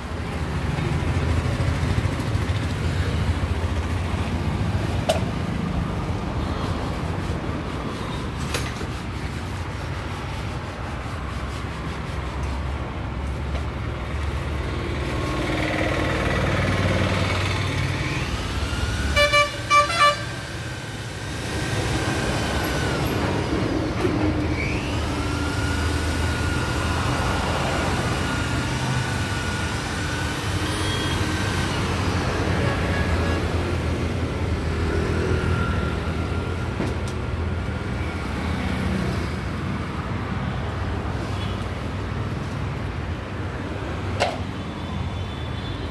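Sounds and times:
electric polisher motor whine: 0:17.1 - 0:23.2, 0:24.5 - 0:32.2
vehicle horn toots: 0:19.1 - 0:20.3.

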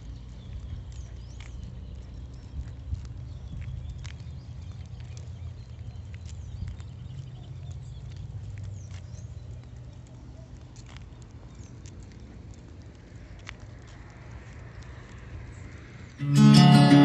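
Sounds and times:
dog claws clicking on concrete: 0:00.1 - 0:16.1.

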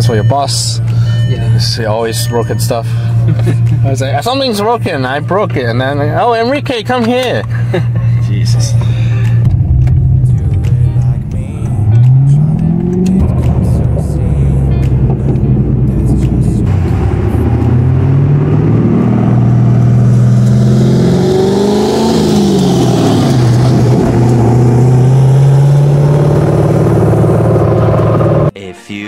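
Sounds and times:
car exhaust at road speed: 0:08.7 - 0:28.5
wind and road noise: 0:08.7 - 0:28.5.

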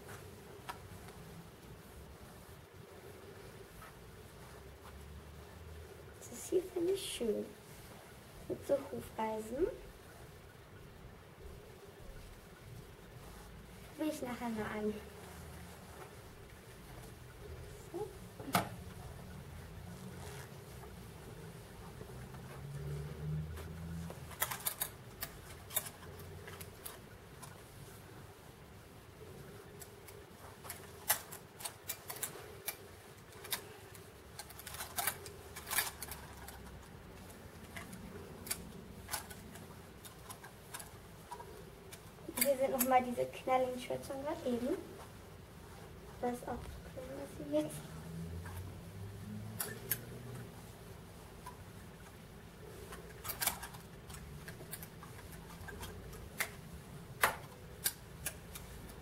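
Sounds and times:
faint steady hum: 0:00.0 - 0:59.0
hangers clicking along rail: 0:47.2 - 0:59.0
clothes hangers clacking on rail: 0:49.4 - 0:50.4.

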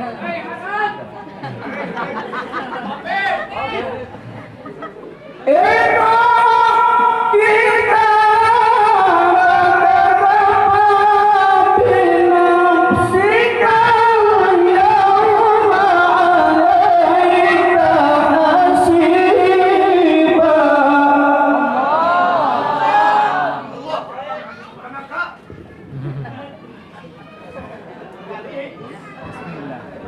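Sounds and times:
man reciting melodically: 0:05.5 - 0:21.9.

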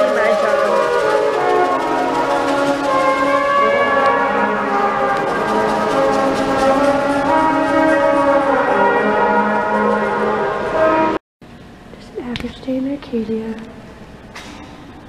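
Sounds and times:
pots and pans percussion: 0:00.0 - 0:08.7
brass and clarinet band playing: 0:00.0 - 0:11.2.

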